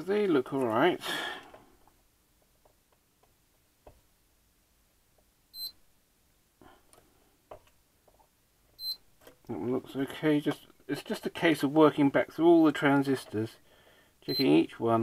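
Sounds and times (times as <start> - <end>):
multimeter beep: 5.6 - 5.8, 8.8 - 9.0, 14.3 - 14.6.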